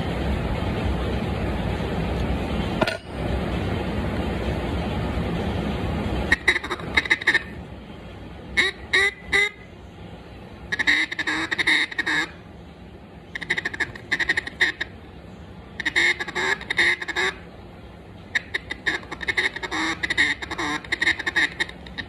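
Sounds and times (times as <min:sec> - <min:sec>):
duck call quacks: 0:06.3 - 0:07.6, 0:08.6 - 0:09.6, 0:10.7 - 0:12.4, 0:13.4 - 0:15.0, 0:15.8 - 0:17.4, 0:18.3 - 0:22.0.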